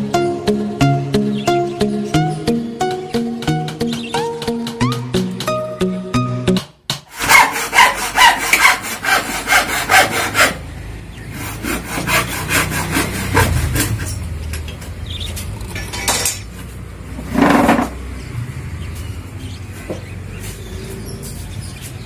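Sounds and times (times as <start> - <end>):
hand saw cutting wood: 7.1 - 14.3.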